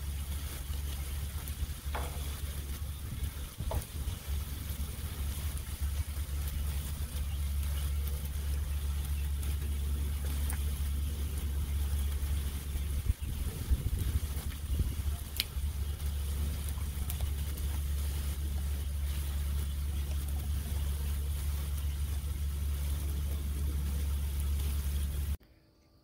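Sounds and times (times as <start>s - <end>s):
low rumble: 0.0s - 25.4s
steak sizzling on a griddle: 0.0s - 25.4s
faint ticks: 15.2s - 15.6s.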